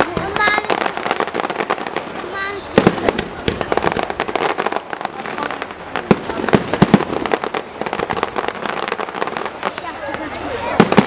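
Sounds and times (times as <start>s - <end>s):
fireworks bursting: 0.0s - 11.0s.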